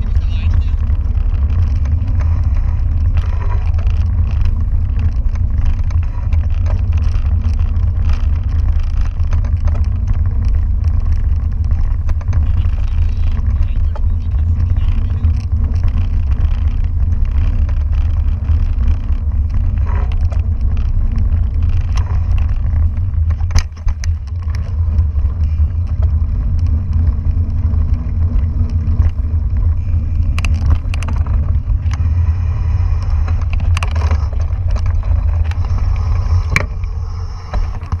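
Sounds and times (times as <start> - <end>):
bike clicks and rattles: 0.0 - 38.0
bike rolling on dirt trail: 0.0 - 38.0
wind buffeting microphone: 0.0 - 38.0.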